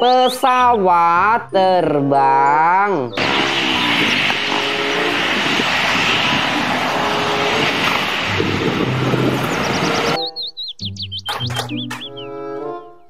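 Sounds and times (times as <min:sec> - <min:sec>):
airliner jet engines: 0:03.1 - 0:10.2.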